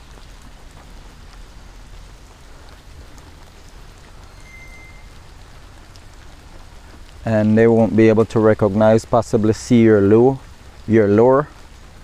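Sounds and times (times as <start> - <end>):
light rain falling: 0.0 - 12.0
short high whistle: 4.3 - 5.2.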